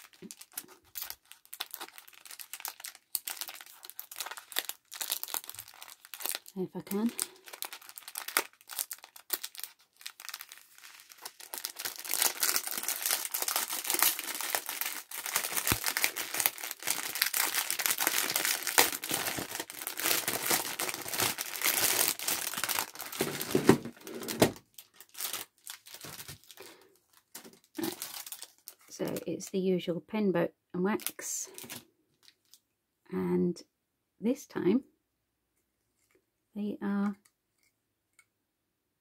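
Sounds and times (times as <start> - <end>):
plastic bag crinkling: 0.0 - 29.4, 31.0 - 32.6.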